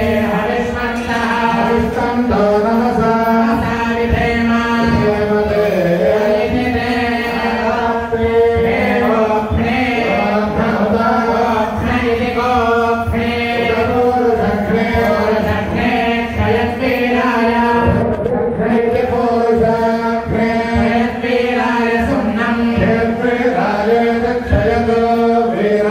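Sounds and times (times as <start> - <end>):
priests chanting together: 0.0 - 25.9.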